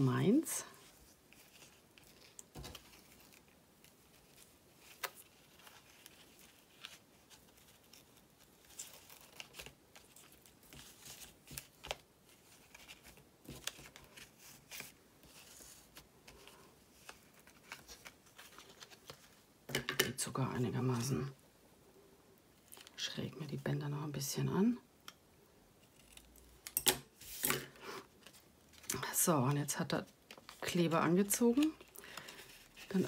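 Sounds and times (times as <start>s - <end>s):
ribbon rustling against card: 0.8s - 19.4s.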